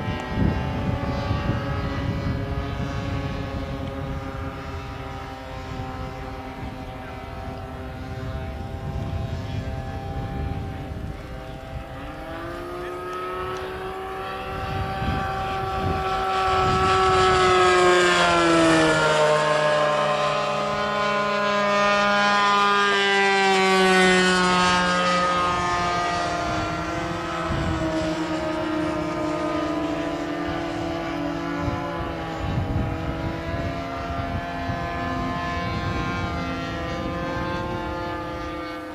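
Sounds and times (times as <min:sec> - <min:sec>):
model plane engine running: 0:00.0 - 0:38.9.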